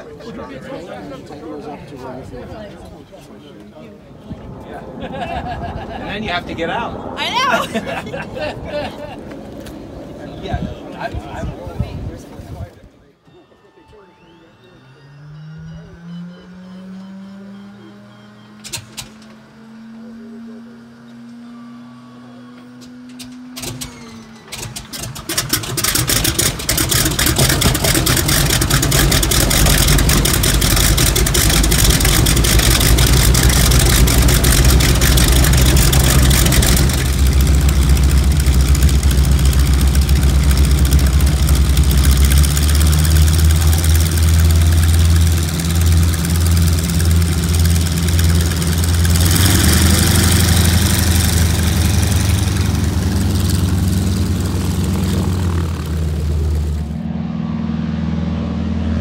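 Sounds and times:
radial aircraft engines idling: 0:21.5 - 0:57.1.

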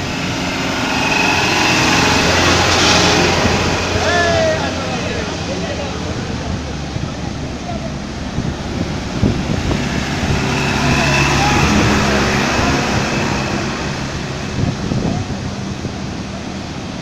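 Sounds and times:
truck engines running: 0:00.0 - 0:17.0
water rushing and splashing: 0:00.0 - 0:17.0.

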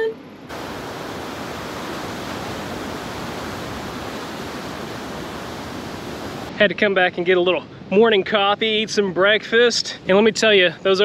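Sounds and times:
ocean surf breaking on beach: 0:00.5 - 0:06.6.

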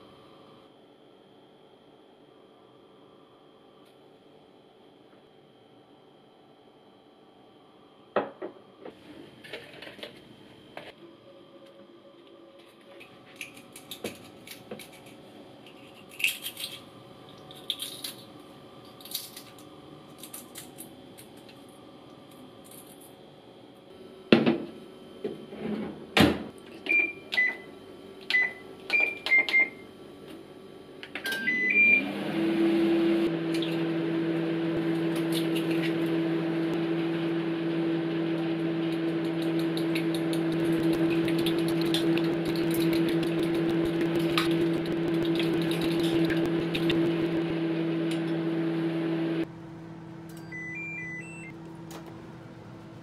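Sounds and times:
microwave running hum: 0:00.0 - 0:53.0
keypad beeps: 0:50.3 - 0:51.5.

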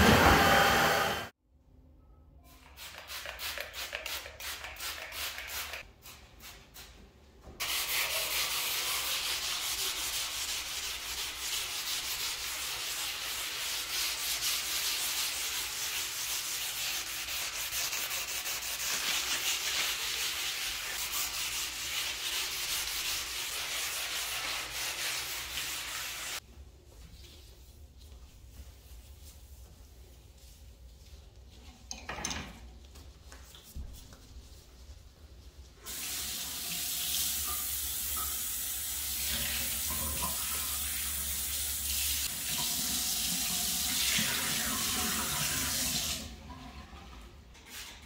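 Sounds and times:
sponge scrubbing stone countertop: 0:07.6 - 0:31.8.

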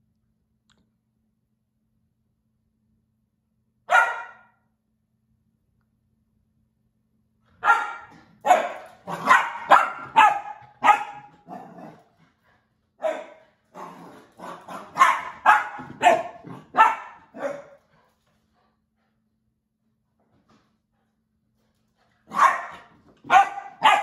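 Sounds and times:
puppy barking: 0:03.9 - 0:04.6, 0:07.6 - 0:12.0, 0:13.0 - 0:17.8, 0:22.3 - 0:24.0.

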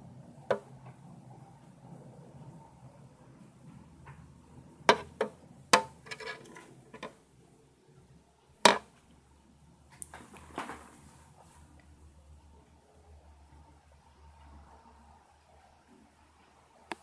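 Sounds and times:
scraping rattle: 0:05.8 - 0:07.2.

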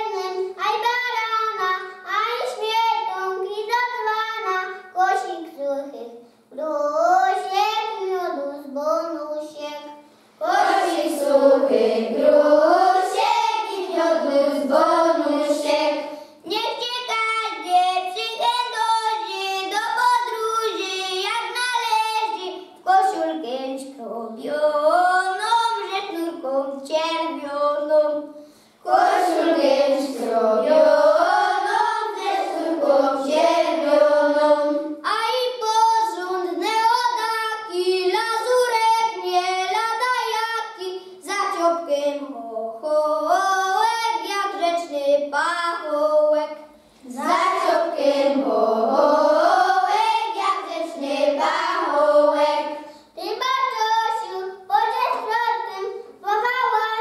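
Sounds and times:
women singing: 0:10.4 - 0:16.1, 0:28.9 - 0:34.9, 0:47.1 - 0:50.2
children singing a carol: 0:10.4 - 0:16.4, 0:27.5 - 0:40.2, 0:45.9 - 0:54.6.

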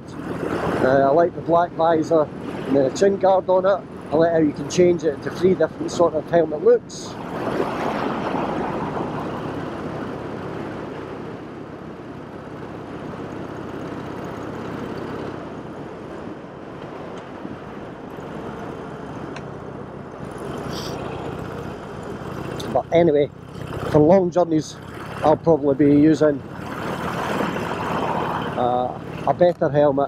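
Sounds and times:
wind rushing over microphone: 0:00.0 - 0:04.6, 0:05.5 - 0:22.8
motorcycle engine cruising: 0:00.0 - 0:30.0.

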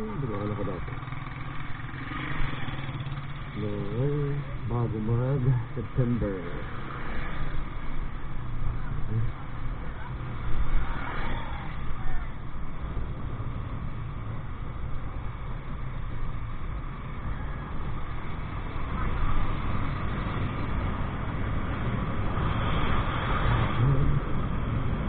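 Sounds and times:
motorcycle engine running: 0:00.0 - 0:04.6
road rumble: 0:00.0 - 0:25.0.

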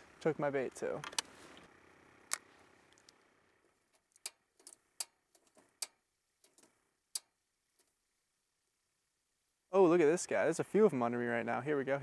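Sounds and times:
piezo igniter clicking: 0:04.0 - 0:07.4.

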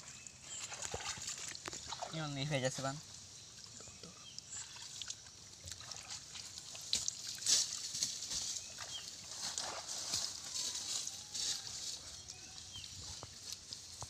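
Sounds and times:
fish thrashing and splashing: 0:04.4 - 0:07.9, 0:08.7 - 0:10.5.

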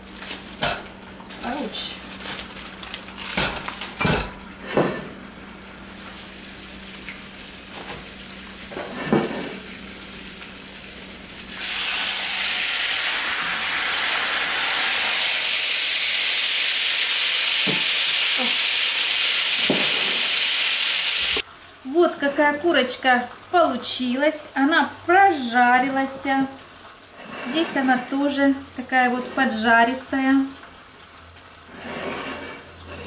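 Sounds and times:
aluminium foil crinkling: 0:00.0 - 0:04.4, 0:05.1 - 0:08.7
chicken sizzling in skillet: 0:00.0 - 0:21.7
pans clattering: 0:03.3 - 0:05.2.

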